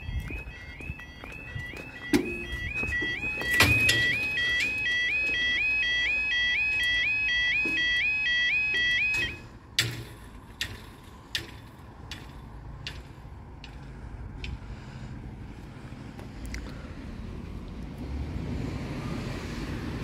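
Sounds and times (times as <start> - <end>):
level crossing warbling alarm: 0.0 - 9.6.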